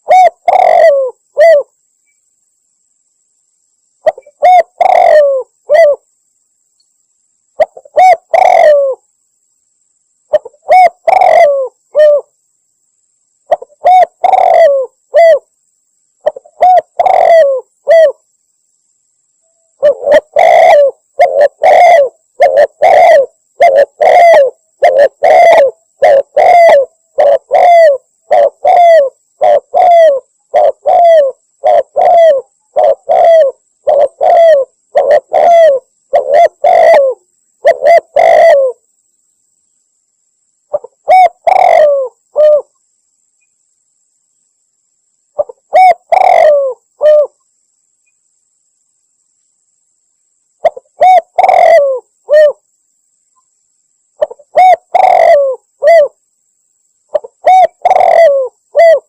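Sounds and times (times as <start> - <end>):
dove cooing: 0.0 - 1.7, 4.0 - 6.0, 7.6 - 9.0, 10.3 - 12.3, 13.5 - 15.5, 16.2 - 18.2, 19.8 - 38.8, 40.7 - 42.7, 45.4 - 47.4, 50.6 - 52.6, 54.2 - 56.2, 57.1 - 59.0.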